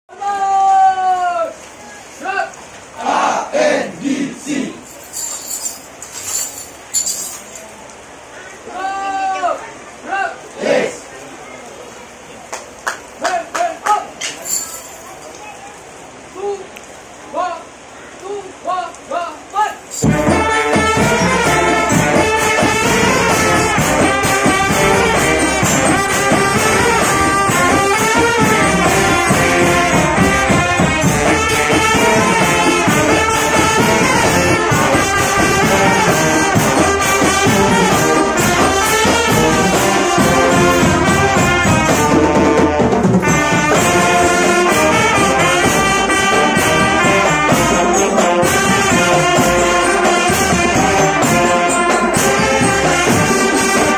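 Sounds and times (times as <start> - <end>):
trumpets and brass: 19.7 - 53.9
snare and bass drums marching beat: 19.9 - 53.9.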